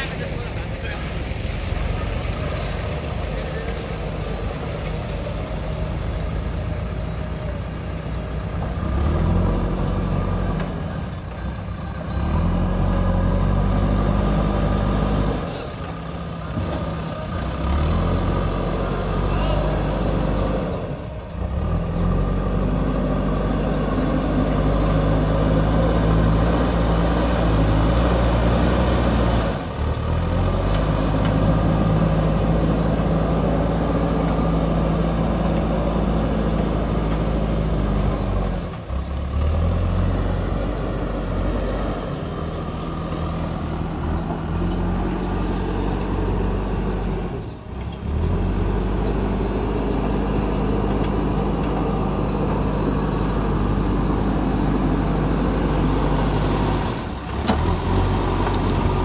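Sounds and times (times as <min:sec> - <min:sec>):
diesel engine under load: 0:00.0 - 0:59.0.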